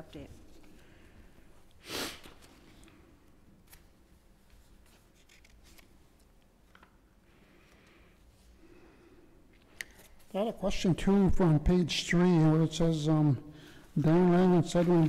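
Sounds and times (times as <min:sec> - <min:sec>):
low room noise: 0:00.0 - 0:15.0
faint paper ticks and shuffles: 0:00.2 - 0:08.6, 0:14.0 - 0:15.0
papers rustling: 0:14.0 - 0:15.0.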